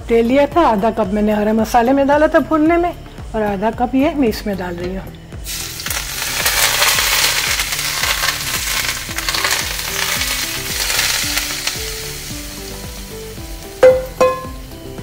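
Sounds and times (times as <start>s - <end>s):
soft background music: 0.0s - 15.0s
hot oil sizzling and crackling: 5.4s - 15.0s.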